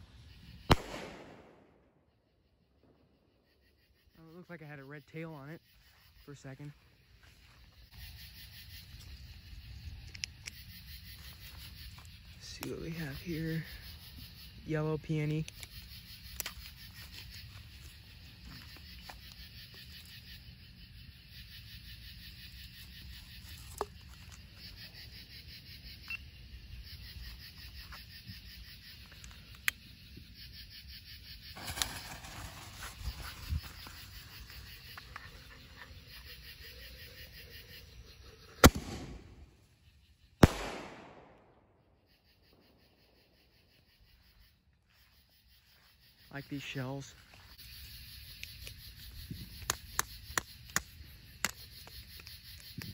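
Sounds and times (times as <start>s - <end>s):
firework shell launch report: 0.5s - 2.1s, 38.6s - 39.6s, 40.4s - 41.7s
firework shell bursting overhead: 0.7s - 1.9s, 38.6s - 39.5s.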